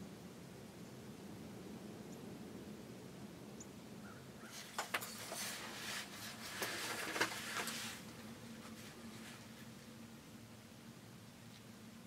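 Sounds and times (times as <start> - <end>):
rustling through dry grass: 4.4 - 11.7.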